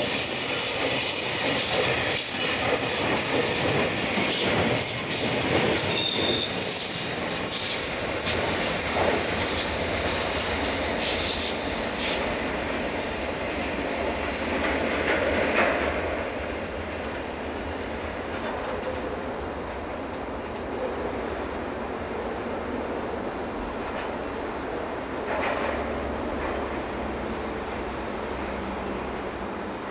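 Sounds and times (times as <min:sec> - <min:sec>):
train wheel squeal: 0:00.0 - 0:12.6, 0:13.3 - 0:19.2
freight train wagons rolling: 0:00.0 - 0:20.7.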